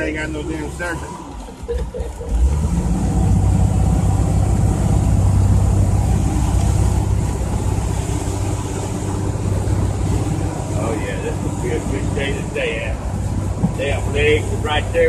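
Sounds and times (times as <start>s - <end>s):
boat engine drone: 0.0s - 15.0s.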